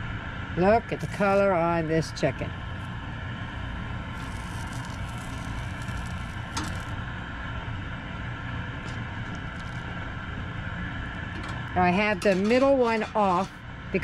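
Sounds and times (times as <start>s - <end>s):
steady low rumble: 0.0s - 14.0s
chicken sizzling on a grill: 3.8s - 7.0s, 8.8s - 10.0s.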